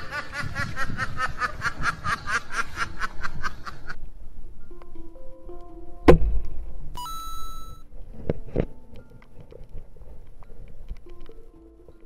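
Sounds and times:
person snickering laugh: 0.0s - 4.0s.

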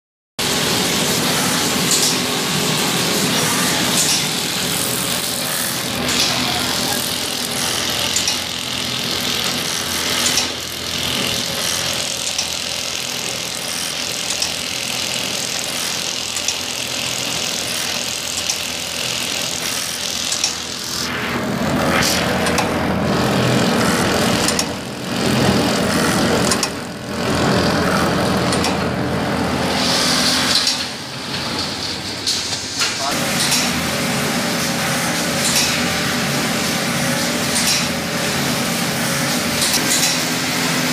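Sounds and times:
stitching machine hum and rattle: 0.4s - 40.9s
machine clicks: 3.9s - 5.3s, 6.0s - 20.8s, 23.9s - 27.5s, 28.4s - 28.9s, 30.5s - 32.5s, 35.4s - 35.8s, 37.5s - 37.9s.

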